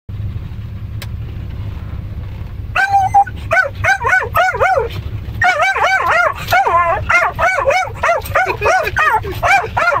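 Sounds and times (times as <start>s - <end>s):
low rumble inside car: 0.1s - 10.0s
dog barking and yelping: 2.8s - 10.0s.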